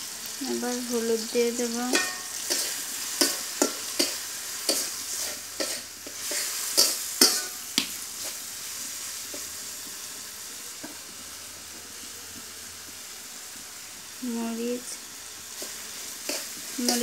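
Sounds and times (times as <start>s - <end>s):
frying sizzle: 0.0s - 17.0s
metal spatula scraping a pan: 1.9s - 8.5s, 15.5s - 17.0s.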